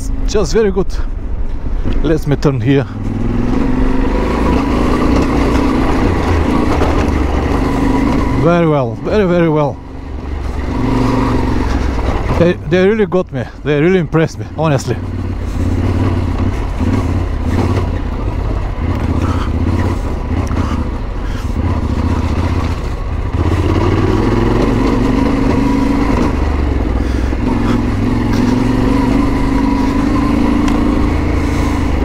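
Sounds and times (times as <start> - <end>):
motorcycle engine running: 2.8 - 32.0.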